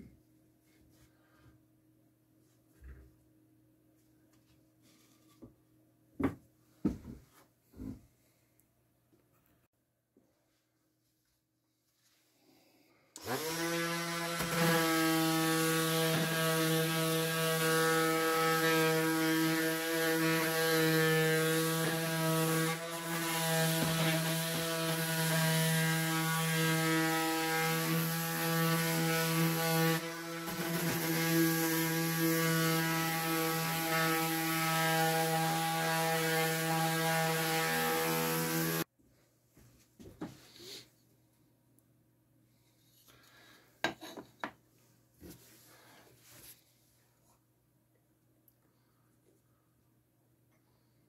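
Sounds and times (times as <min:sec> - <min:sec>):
orbital sander on wood: 0:13.2 - 0:38.9.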